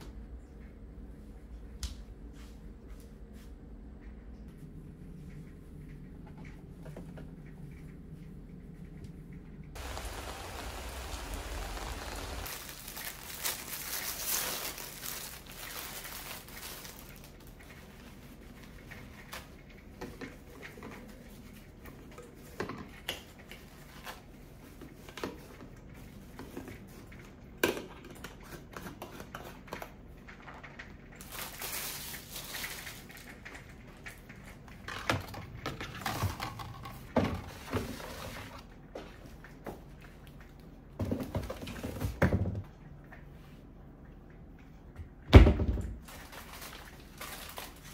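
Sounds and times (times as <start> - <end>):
steady hiss: 9.8 - 13.8
foil packets crinkling: 9.8 - 19.5, 31.2 - 33.4, 46.0 - 47.9.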